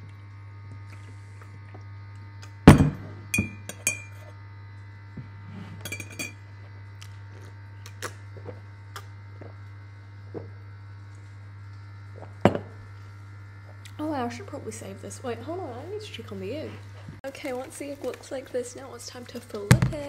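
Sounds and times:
teaspoon clinking against mug: 0:03.4 - 0:04.3.

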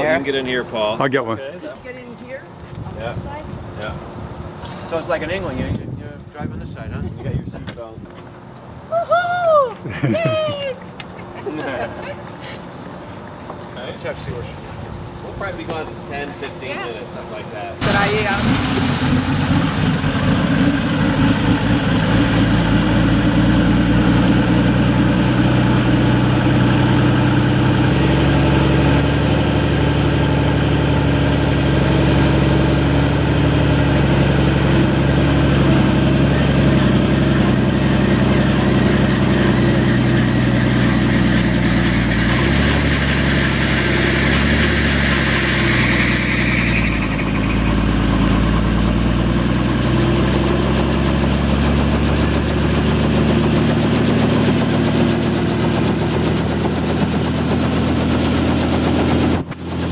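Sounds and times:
rising whine: 0:17.8 - 0:59.9
helicopter engine and rotor: 0:47.7 - 0:59.9.

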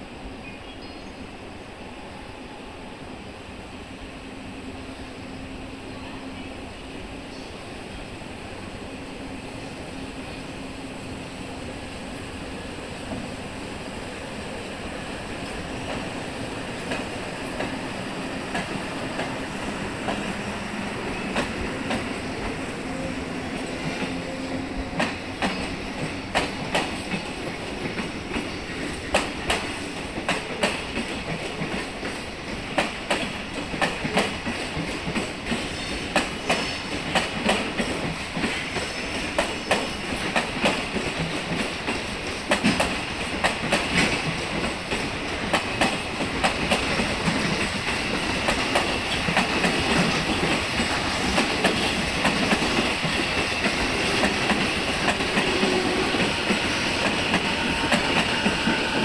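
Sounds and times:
train wheels clicking over rail joints: 0:15.4 - 0:22.6, 0:24.8 - 0:59.0.

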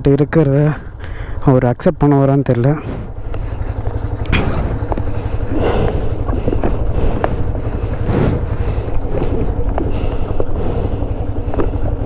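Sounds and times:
wind buffeting microphone: 0:02.6 - 0:12.0.

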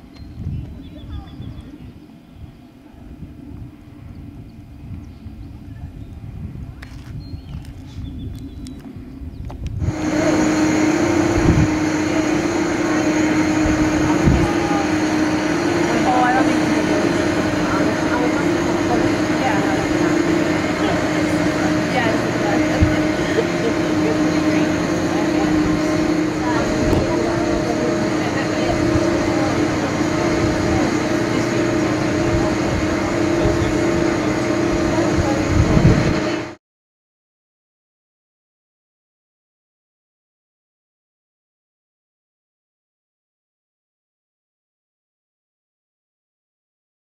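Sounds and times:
ferry engine droning: 0:08.6 - 0:36.6
wind rushing: 0:09.6 - 0:36.5.

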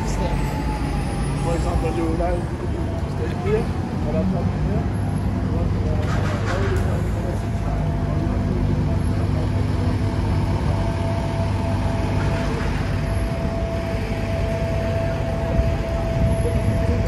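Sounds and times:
vehicle engines rumbling: 0:00.0 - 0:17.0
thin steady whine: 0:07.6 - 0:17.0.

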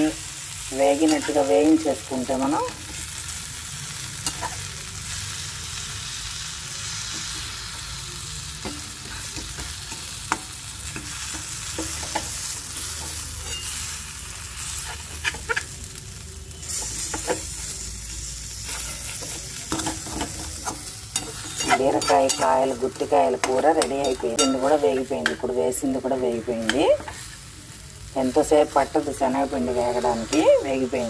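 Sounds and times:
food sizzling in a pan: 0:00.0 - 0:31.0
spatula scraping a metal pan: 0:08.6 - 0:15.8, 0:16.6 - 0:25.3.

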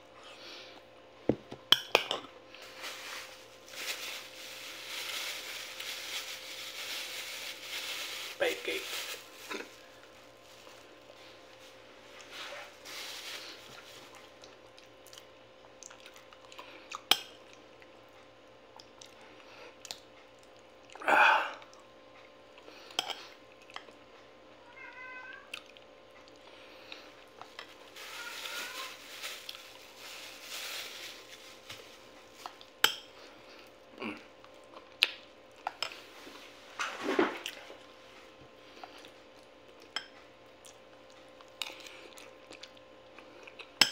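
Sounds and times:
soft chewing: 0:13.4 - 0:21.0, 0:21.6 - 0:24.3, 0:25.4 - 0:27.8, 0:29.2 - 0:36.4, 0:37.4 - 0:43.9
cat meowing: 0:24.6 - 0:25.5, 0:28.0 - 0:29.0.

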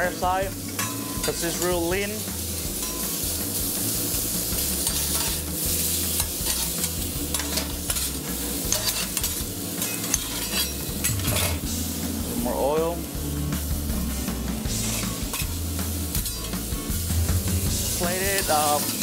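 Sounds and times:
meat sizzling on griddle: 0:00.0 - 0:19.0
metal spatulas scraping griddle: 0:04.8 - 0:11.7, 0:14.8 - 0:15.6, 0:18.2 - 0:19.0.

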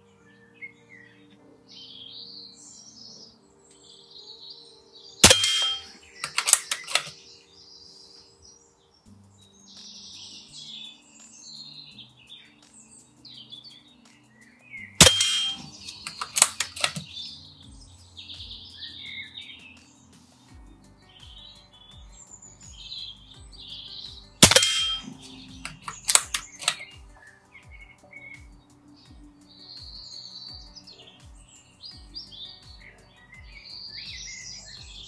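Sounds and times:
birds chirping: 0:00.0 - 0:35.0
air rifle shot crack: 0:05.2 - 0:07.2, 0:15.0 - 0:17.0, 0:24.4 - 0:26.8
rapid clicks: 0:05.2 - 0:07.2, 0:15.0 - 0:17.2, 0:24.4 - 0:27.2.

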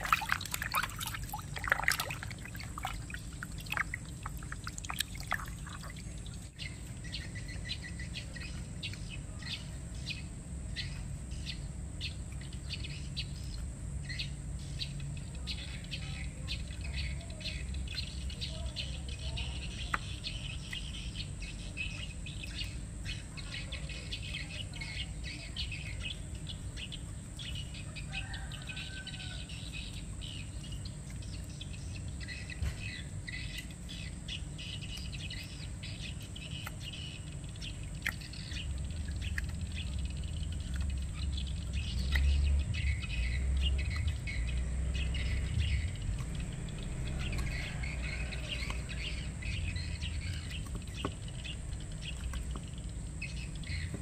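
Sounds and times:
birds chirping: 0:00.0 - 0:54.0
insects calling: 0:00.0 - 0:54.0
low rumble: 0:38.5 - 0:50.1.

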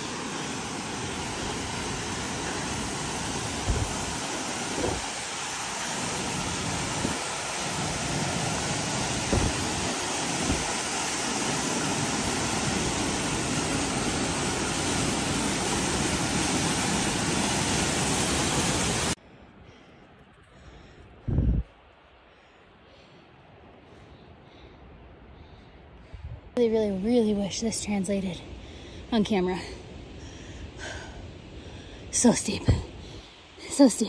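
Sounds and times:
waterfall roaring: 0:00.0 - 0:19.2.

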